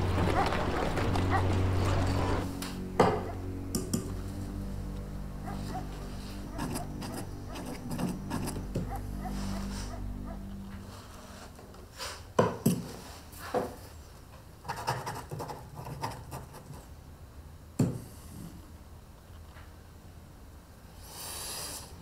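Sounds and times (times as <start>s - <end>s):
soft low music: 0.0s - 11.7s
pen scratching on paper: 6.5s - 10.0s.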